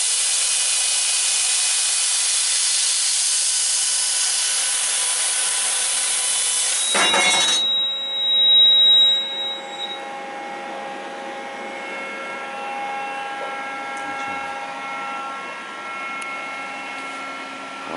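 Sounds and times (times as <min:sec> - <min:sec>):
machine humming: 0:06.6 - 0:17.9.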